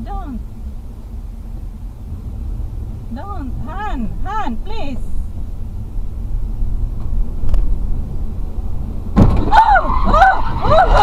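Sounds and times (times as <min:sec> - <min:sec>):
car driving low rumble: 0:00.0 - 0:11.0
person crying out high-pitched: 0:09.5 - 0:11.0.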